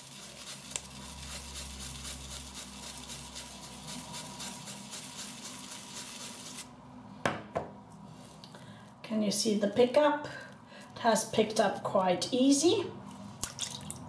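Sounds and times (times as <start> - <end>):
shaving brush wet scrubbing: 0.0 - 6.7.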